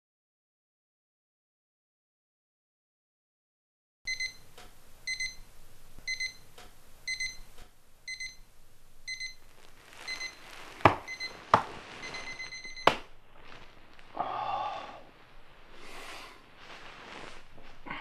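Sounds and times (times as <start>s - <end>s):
alarm clock beeping: 4.1s - 8.5s, 9.1s - 9.5s, 10.1s - 13.1s
bedding rustling: 9.1s - 18.0s.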